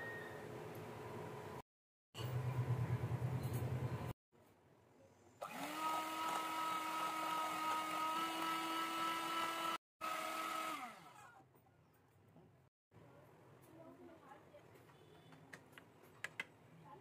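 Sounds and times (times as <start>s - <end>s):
electric hand mixer whining: 5.4s - 11.4s.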